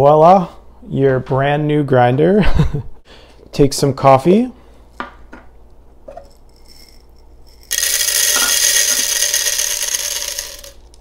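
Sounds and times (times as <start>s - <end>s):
coffee beans rattling into grinder: 6.2s - 11.0s.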